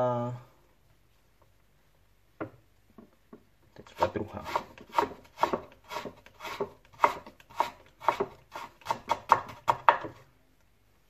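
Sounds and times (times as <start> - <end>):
knife cutting carrot on board: 3.8 - 10.2.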